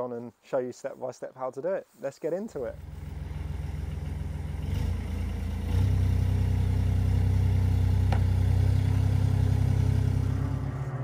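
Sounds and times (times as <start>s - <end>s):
dumper engine running: 2.7s - 11.0s.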